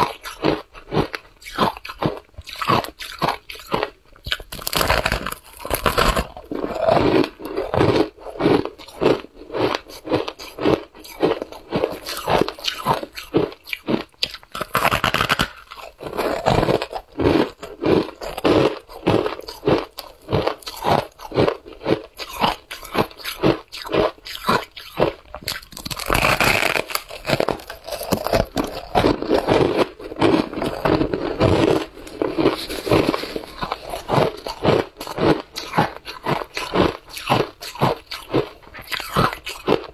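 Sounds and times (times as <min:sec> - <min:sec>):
shaved ice crunching: 0:22.2 - 0:39.7.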